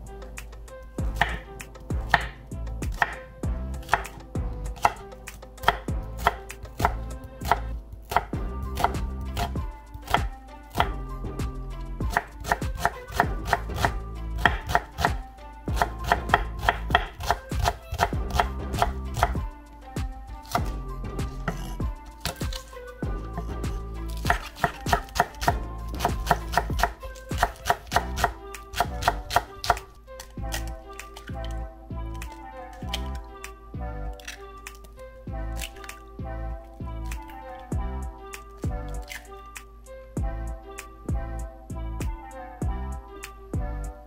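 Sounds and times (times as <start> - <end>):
knife chopping on wooden board: 1.0 - 3.2, 3.8 - 5.0, 5.6 - 11.0, 12.1 - 19.5, 20.4 - 22.7, 23.4 - 30.7.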